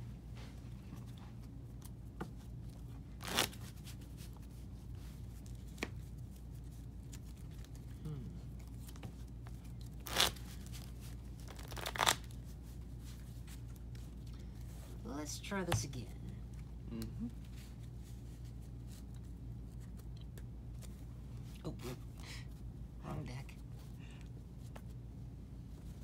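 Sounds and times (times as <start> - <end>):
cards shuffling: 1.4 - 14.8, 17.4 - 21.1.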